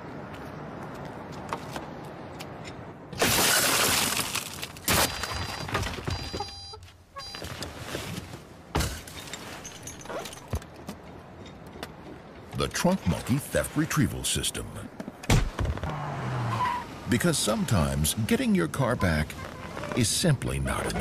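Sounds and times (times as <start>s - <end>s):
car window glass shattering: 3.2s - 6.1s.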